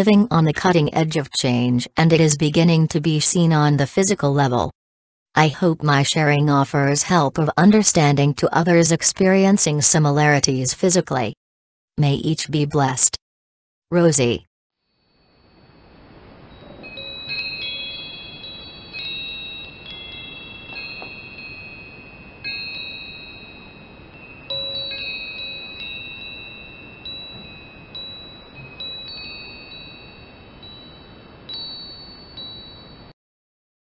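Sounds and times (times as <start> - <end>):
faint steady hiss: 15.0 - 33.1
wind chimes ringing: 15.0 - 33.2.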